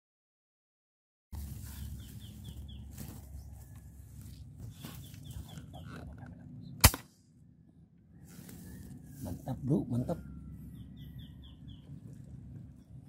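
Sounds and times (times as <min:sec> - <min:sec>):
birds calling whistled notes: 0:01.4 - 0:06.8, 0:08.1 - 0:12.2
air rifle shot: 0:06.8 - 0:07.2.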